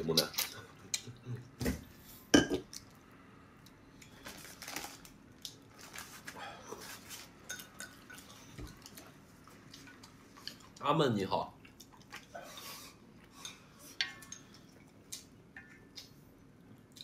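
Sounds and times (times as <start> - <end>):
chewing and mouth noises: 11.6 - 12.4.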